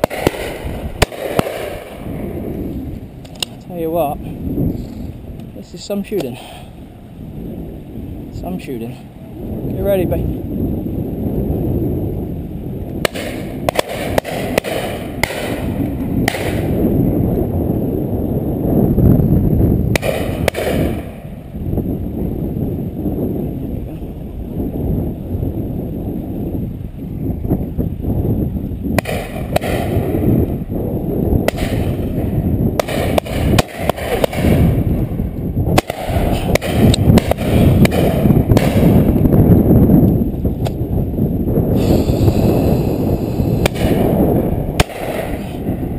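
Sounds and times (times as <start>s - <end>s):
distant shotgun shots: 0.0s - 2.3s, 13.0s - 16.8s, 19.9s - 21.3s, 29.0s - 30.2s, 31.4s - 39.2s, 43.6s - 44.1s, 44.8s - 45.7s
wind rumble on microphone: 0.0s - 45.9s.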